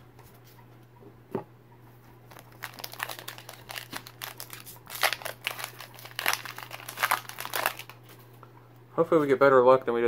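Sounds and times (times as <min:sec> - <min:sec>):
foil wrapper crinkling: 0:02.3 - 0:08.0.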